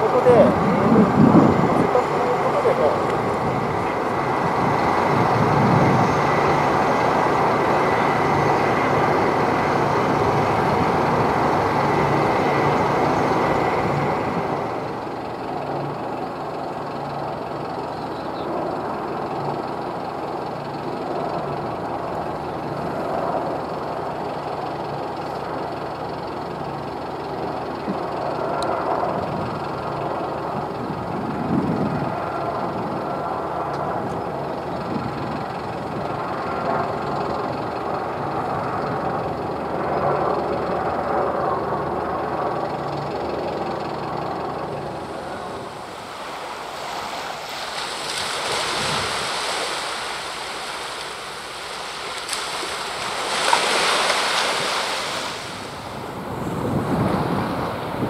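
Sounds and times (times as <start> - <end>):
wind on microphone: 0.0 - 15.0, 29.0 - 33.3, 33.9 - 36.4, 48.0 - 50.0, 53.5 - 58.0
water wash of a wake: 0.0 - 17.9, 42.4 - 58.0
diesel engine rumbling: 0.0 - 58.0.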